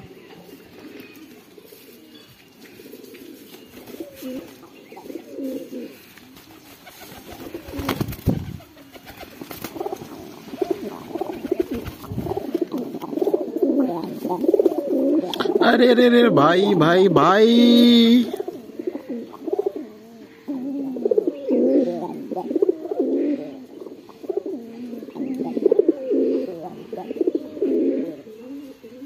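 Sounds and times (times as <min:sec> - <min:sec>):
pigeons cooing: 0:00.0 - 0:29.0
pigeon wing flaps: 0:06.3 - 0:12.9.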